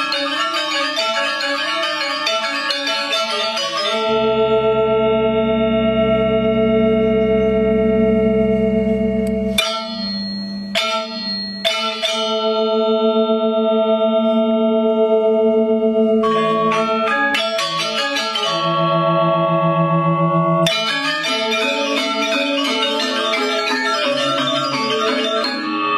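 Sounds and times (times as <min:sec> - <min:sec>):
gamelan metallophones ringing chords: 0:00.0 - 0:08.4, 0:09.2 - 0:25.9
deep low tone: 0:04.2 - 0:09.6
sharp unison metallophone strikes: 0:09.2 - 0:13.0, 0:16.2 - 0:19.0, 0:20.6 - 0:25.9.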